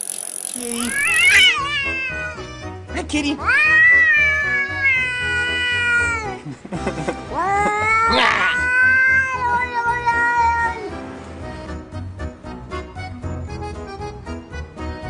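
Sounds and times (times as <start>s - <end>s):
cat yowling: 0.8s - 2.7s, 3.4s - 6.4s, 7.3s - 10.9s
background music: 1.2s - 15.0s.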